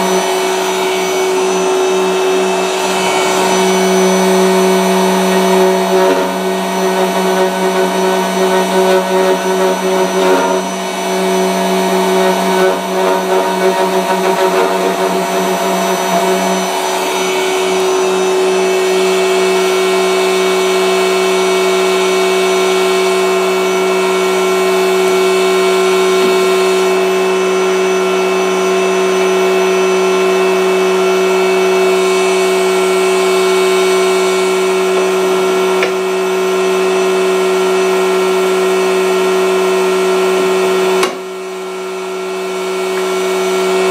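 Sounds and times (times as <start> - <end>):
electric motor humming: 0.0 - 20.7, 23.4 - 37.1.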